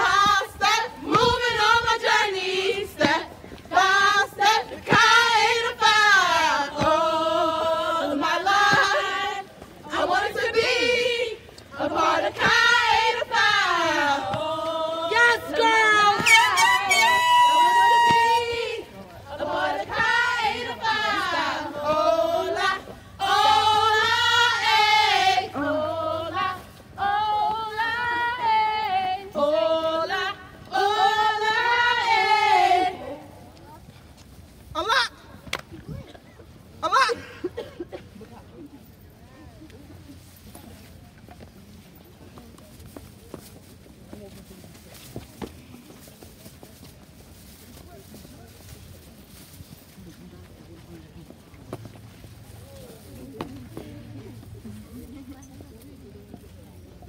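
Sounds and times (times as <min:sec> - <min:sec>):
women singing a chant: 0:00.0 - 0:33.6.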